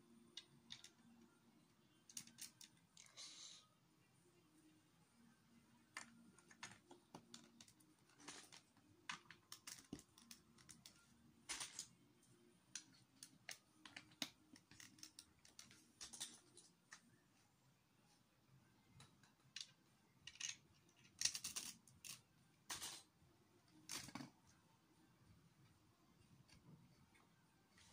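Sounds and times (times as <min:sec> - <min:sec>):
plastic bricks clicking: 0:02.1 - 0:02.8, 0:19.3 - 0:23.0.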